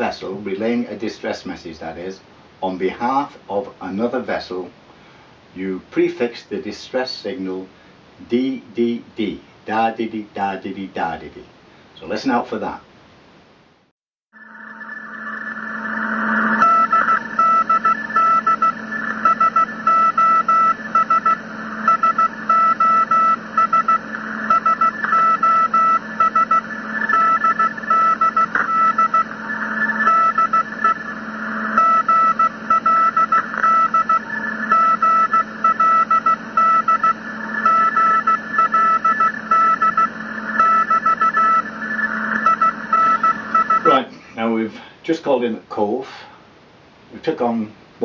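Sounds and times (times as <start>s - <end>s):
steady low hum: 14.4s - 48.0s
radio hiss: 14.6s - 46.5s
morse code beeping tone: 14.7s - 31.1s, 31.7s - 44.0s.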